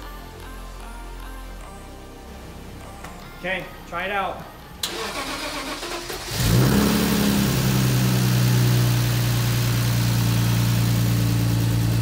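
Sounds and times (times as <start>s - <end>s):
car engine idling: 4.8s - 12.0s.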